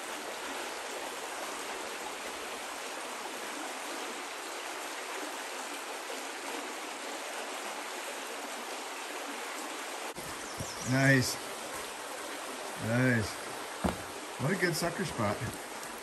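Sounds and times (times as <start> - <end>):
water rushing over stones: 9.9 - 16.0.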